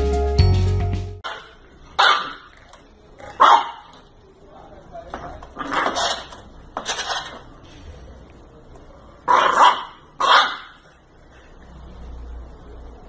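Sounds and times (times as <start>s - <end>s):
puppy barking: 1.2s - 2.6s, 3.3s - 4.0s, 9.3s - 10.9s.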